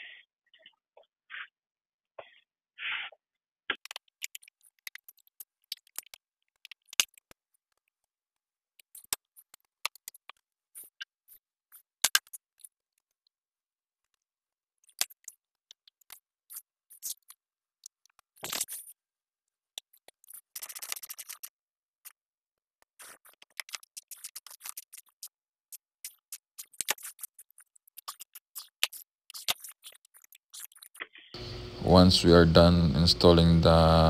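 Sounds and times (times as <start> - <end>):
plastic clicks and scrapes: 22.8 - 31.4.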